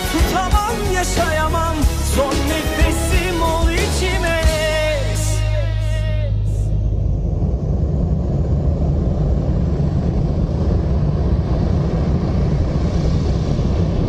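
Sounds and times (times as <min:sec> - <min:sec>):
low rumbling noise: 0:00.0 - 0:14.0.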